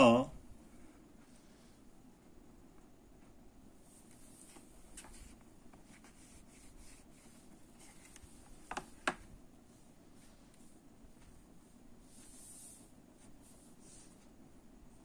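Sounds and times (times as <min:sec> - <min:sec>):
marker drawing on whiteboard: 0:03.8 - 0:14.4.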